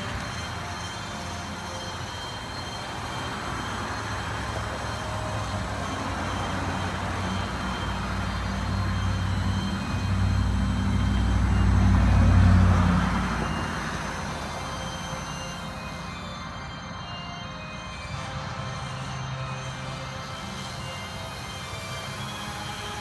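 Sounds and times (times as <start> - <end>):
vehicle passing by: 2.9 - 16.5.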